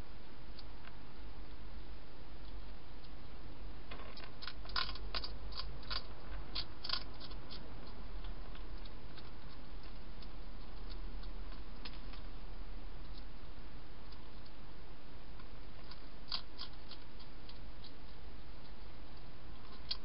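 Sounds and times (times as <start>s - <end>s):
steady low hum: 0.0s - 20.0s
hedgehog crunching dry food: 3.9s - 13.3s, 15.4s - 20.0s.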